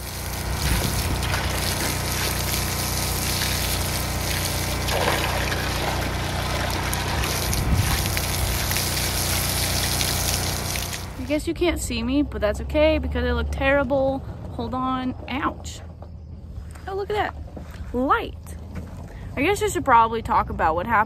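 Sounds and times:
hose water splashing into bucket: 0:00.0 - 0:11.3.

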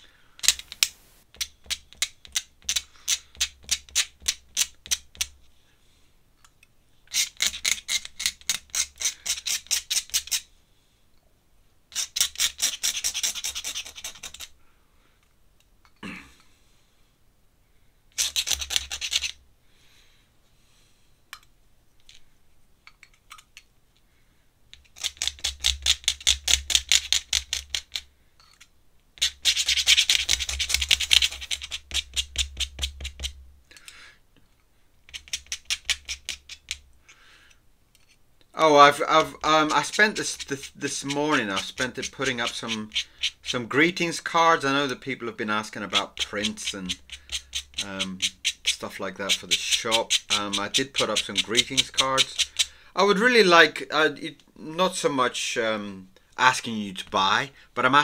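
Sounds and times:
pen scratching on paper: 0:29.2 - 0:33.3.

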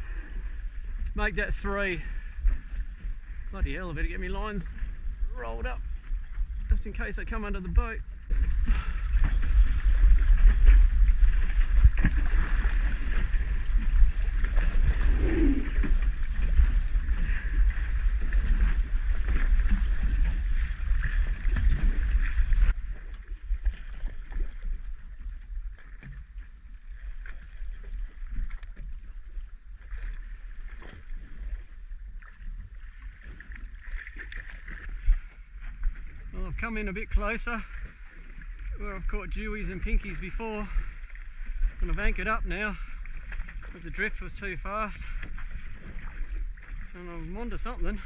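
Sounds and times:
wind buffeting microphone: 0:00.0 - 0:26.4
water slapping boat hull: 0:00.0 - 0:48.0.

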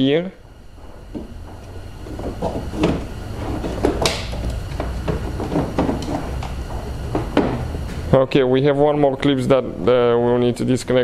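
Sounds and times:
knocking and scraping in car door: 0:02.0 - 0:06.4.

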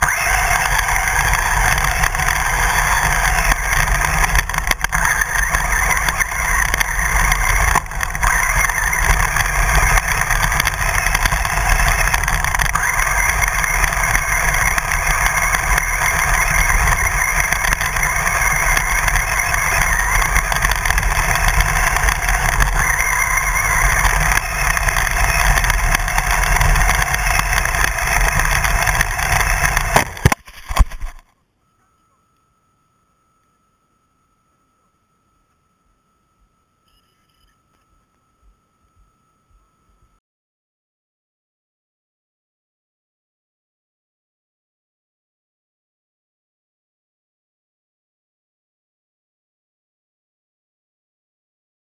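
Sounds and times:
rc car motor noise: 0:00.0 - 0:40.2
ground rumble: 0:00.4 - 0:31.2.

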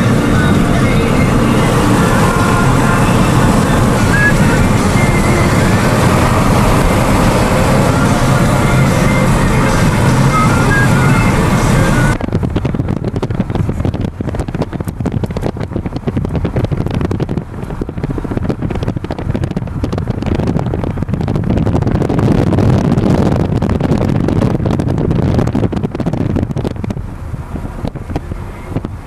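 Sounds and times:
music: 0:00.0 - 0:12.2
road noise inside car: 0:00.0 - 0:29.0
wind buffeting microphone: 0:00.0 - 0:29.0.

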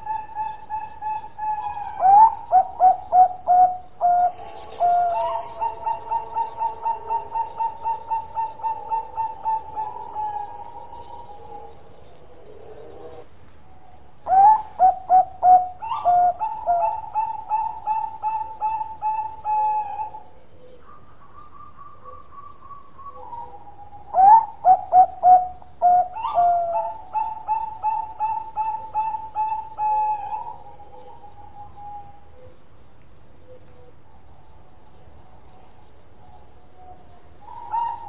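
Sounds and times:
dove singing rolling coos: 0:00.0 - 0:38.0.

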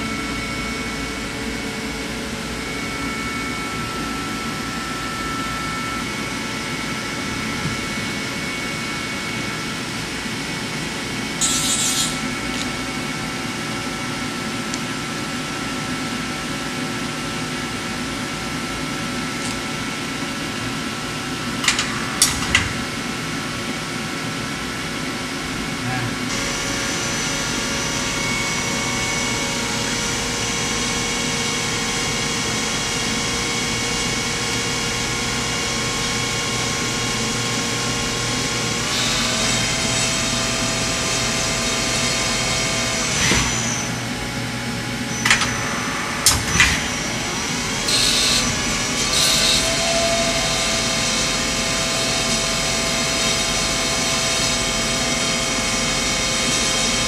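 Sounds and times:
lathe motors whining: 0:00.0 - 0:14.4, 0:25.5 - 0:57.0
mechanical hum: 0:00.0 - 0:57.0.

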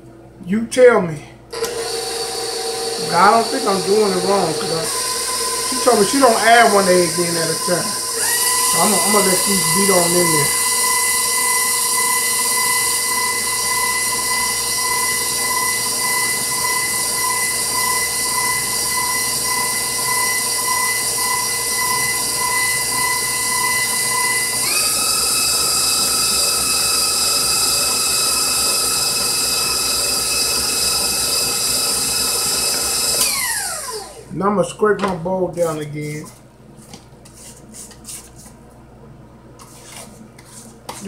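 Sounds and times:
stand mixer motor whining: 0:01.5 - 0:34.3.

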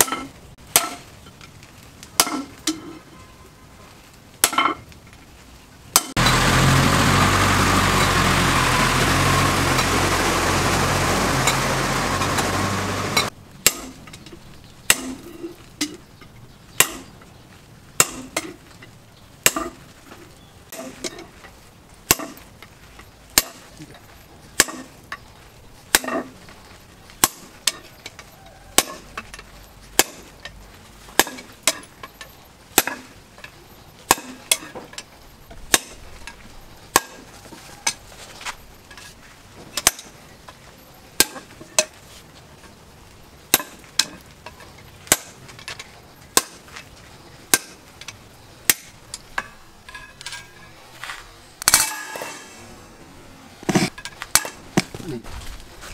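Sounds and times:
loud steady rushing noise: 0:06.2 - 0:13.3.

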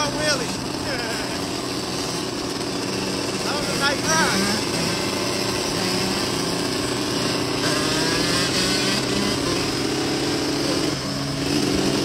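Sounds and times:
dirt bike engines running: 0:00.0 - 0:12.0.

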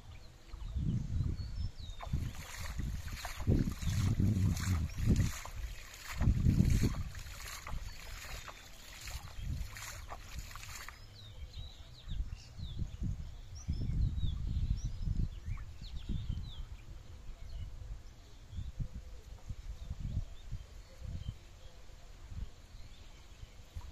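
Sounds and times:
small birds chirping: 0:00.0 - 0:16.8
low rumbling: 0:00.7 - 0:08.0
water splashing from net: 0:02.0 - 0:11.1.

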